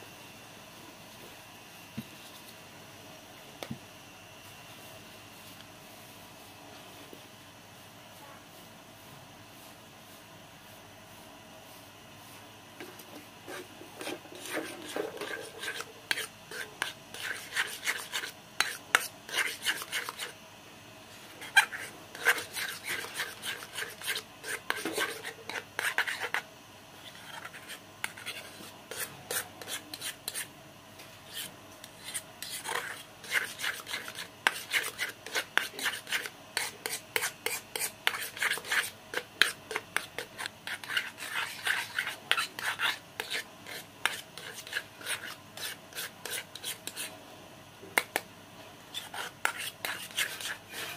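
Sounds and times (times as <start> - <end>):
spoon stirring paste in metal pot: 12.8 - 20.3, 21.4 - 26.4, 27.0 - 30.5, 31.3 - 47.1, 49.0 - 50.9.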